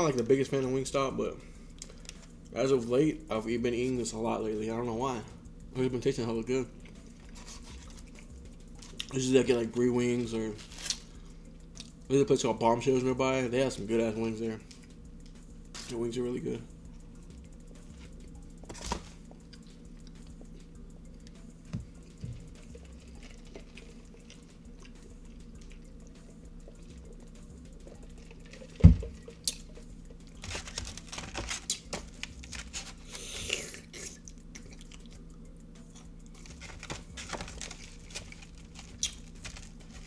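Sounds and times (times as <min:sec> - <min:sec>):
chewing bread: 0:06.7 - 0:09.2, 0:19.2 - 0:40.0
paper wrappers crinkling: 0:30.3 - 0:33.3, 0:36.3 - 0:40.0.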